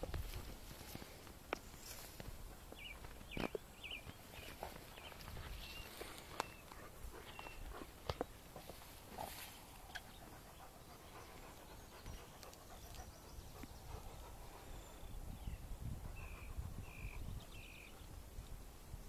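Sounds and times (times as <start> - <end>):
wind rumble on microphone: 0.0 - 1.1, 12.9 - 19.0
long grass rustling: 0.0 - 13.1.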